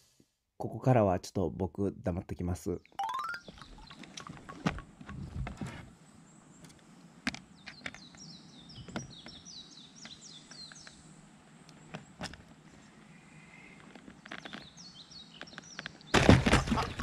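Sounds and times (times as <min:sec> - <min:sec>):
small bird chirping: 0:02.8 - 0:04.4, 0:07.4 - 0:12.3, 0:13.1 - 0:16.2.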